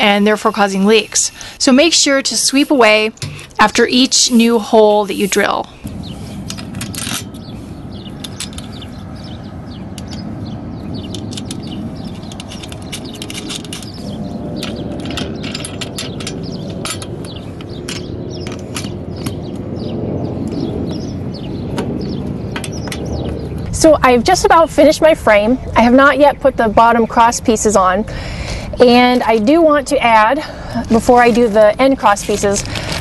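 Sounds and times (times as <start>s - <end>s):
metallic clicks of wrenches: 11.0s - 14.0s, 14.6s - 19.5s.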